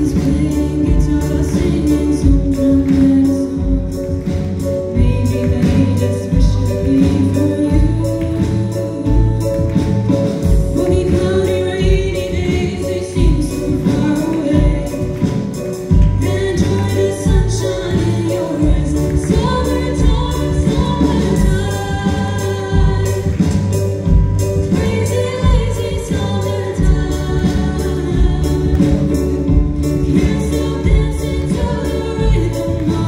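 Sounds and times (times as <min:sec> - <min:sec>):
girls singing into microphones: 0:00.0 - 0:04.3, 0:15.9 - 0:33.0.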